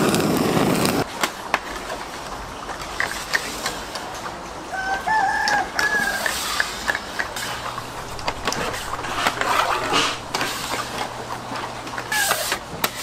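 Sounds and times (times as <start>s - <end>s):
steady low hum: 6.7s - 12.1s.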